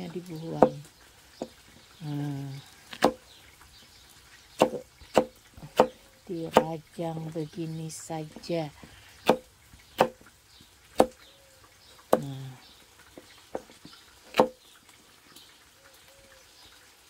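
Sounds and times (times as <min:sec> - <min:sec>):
knife chopping on wooden board: 0:00.6 - 0:00.8, 0:03.0 - 0:03.2, 0:04.6 - 0:06.7, 0:09.2 - 0:10.2, 0:11.0 - 0:11.2, 0:14.4 - 0:14.6.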